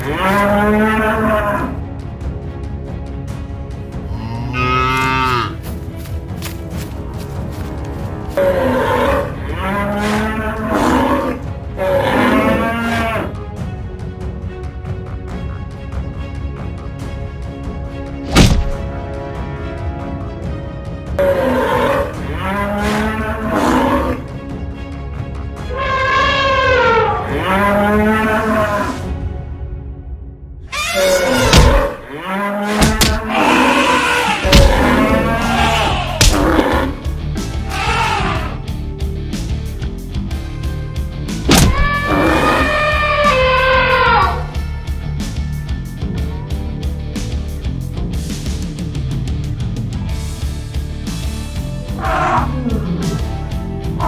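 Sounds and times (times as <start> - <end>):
background music: 0.0 - 54.0
bull bellowing: 4.1 - 5.6, 25.7 - 29.0, 30.7 - 38.6, 41.5 - 44.6, 51.9 - 53.4
cattle mooing: 4.1 - 5.6, 8.4 - 13.3, 30.7 - 37.1
heavy thuds of animals clashing: 18.4 - 18.9, 31.4 - 32.0, 32.8 - 33.3, 34.5 - 35.2, 36.2 - 36.7, 41.5 - 42.1.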